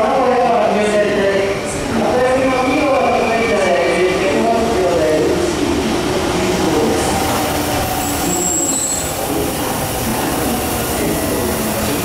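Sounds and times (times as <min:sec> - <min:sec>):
electric train wheels rumbling: 0:03.9 - 0:12.0
high squeal: 0:07.0 - 0:09.7.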